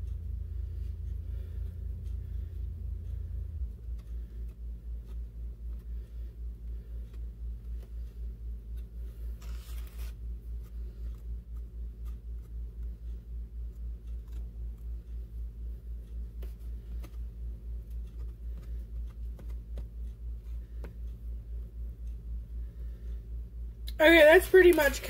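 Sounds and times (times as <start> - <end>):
throbbing low hum: 0.0 - 9.5.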